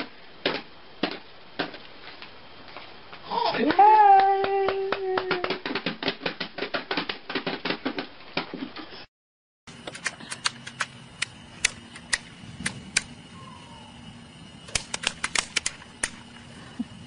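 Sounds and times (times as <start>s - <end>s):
baby beating toy drums: 3.6s - 8.1s
sharp clicks: 9.7s - 13.2s, 14.7s - 16.3s.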